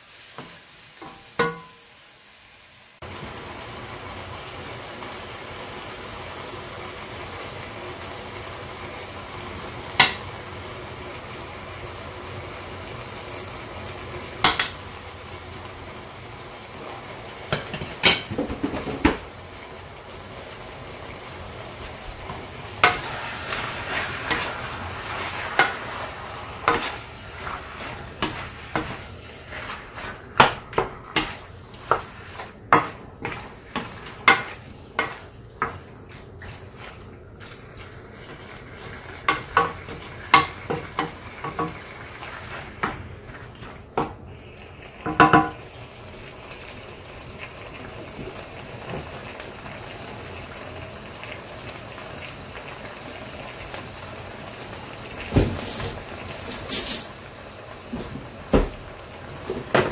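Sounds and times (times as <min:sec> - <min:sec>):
meat sizzling: 0:00.0 - 0:59.9
wooden spoon scraping metal pan: 0:22.8 - 0:43.4.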